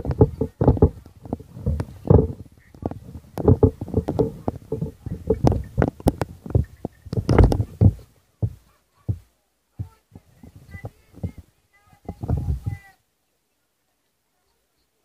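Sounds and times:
wind buffeting microphone: 0:00.0 - 0:09.2, 0:09.8 - 0:12.9.

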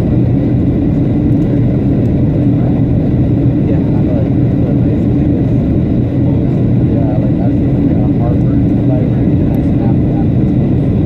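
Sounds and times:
airliner cabin engine drone: 0:00.0 - 0:11.0.

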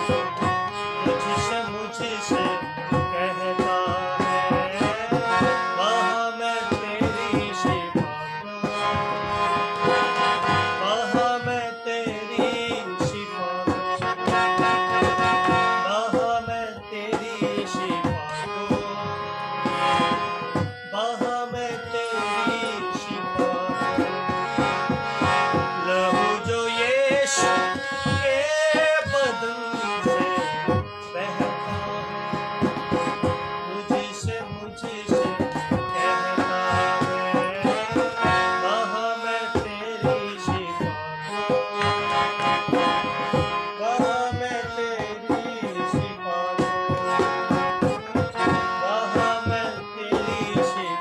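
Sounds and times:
man singing hymn: 0:00.0 - 0:08.8, 0:10.8 - 0:14.7, 0:15.8 - 0:19.2, 0:20.9 - 0:24.6, 0:25.8 - 0:32.4, 0:33.7 - 0:41.8, 0:43.8 - 0:47.2, 0:47.8 - 0:51.0
harmonium chords: 0:00.0 - 0:51.0
hand drum: 0:32.4 - 0:38.8, 0:39.6 - 0:51.0.

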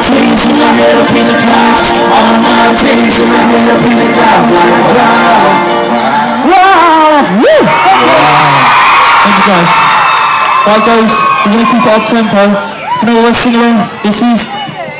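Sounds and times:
male vocal group singing: 0:00.0 - 0:06.4
live pop band: 0:00.0 - 0:08.2.

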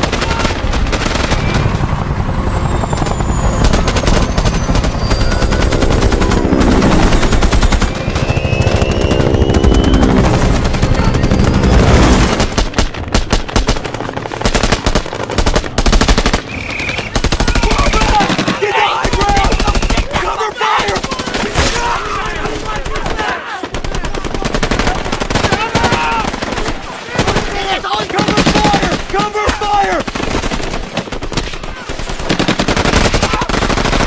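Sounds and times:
automatic gunfire: 0:00.0 - 0:01.6, 0:10.3 - 0:34.0.

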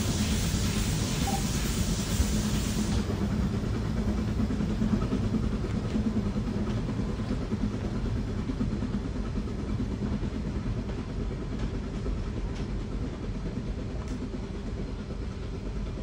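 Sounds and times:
steam hissing: 0:00.0 - 0:05.4
steam locomotive rumbling: 0:00.0 - 0:16.0.

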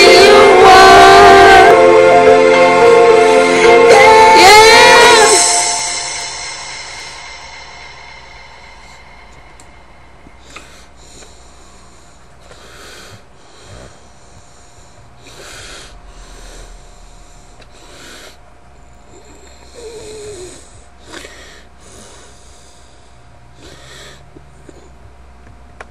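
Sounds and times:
faint hum: 0:00.0 - 0:25.9
person breathing: 0:08.2 - 0:25.0.

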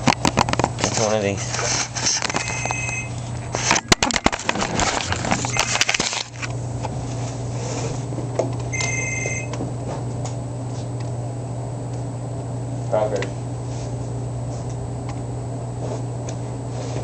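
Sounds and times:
power cords clicking and rustling: 0:00.0 - 0:07.0
steady low hum: 0:00.0 - 0:17.0.

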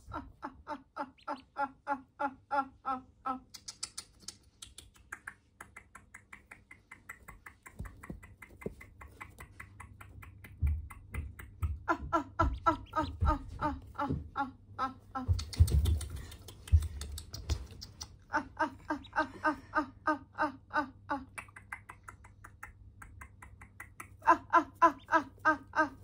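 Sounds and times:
ducklings peeping: 0:01.1 - 0:01.6, 0:12.4 - 0:14.0.

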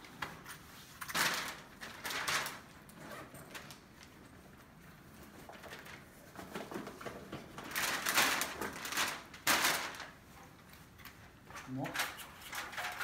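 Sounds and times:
rummaging through a bag: 0:00.4 - 0:10.2.

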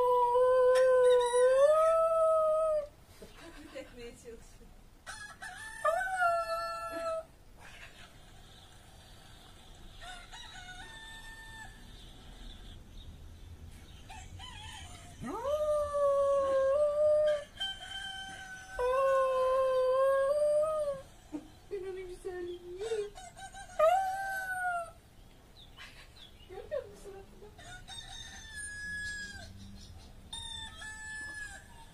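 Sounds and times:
rooster crowing: 0:05.0 - 0:07.2, 0:10.0 - 0:12.0, 0:14.1 - 0:15.4, 0:17.3 - 0:19.2, 0:27.6 - 0:29.6, 0:30.3 - 0:31.9.

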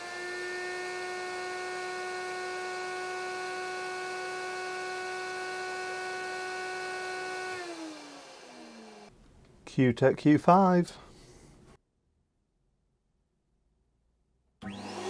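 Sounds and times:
turbine motor whine: 0:00.0 - 0:09.1, 0:14.6 - 0:15.0.

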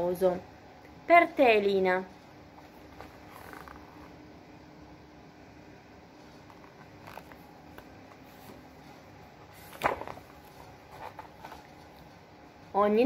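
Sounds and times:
paper page rustle: 0:02.9 - 0:04.1, 0:06.3 - 0:08.6, 0:09.5 - 0:11.9.

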